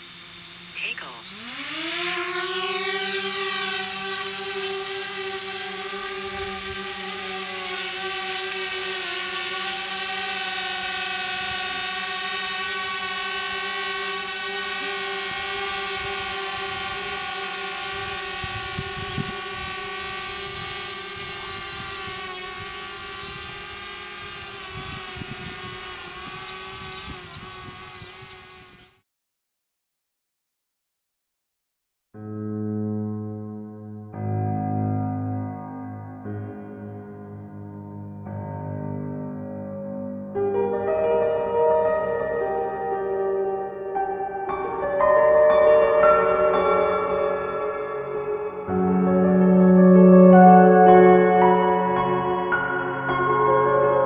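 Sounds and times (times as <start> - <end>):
drone propellers buzzing: 0.0 - 29.0.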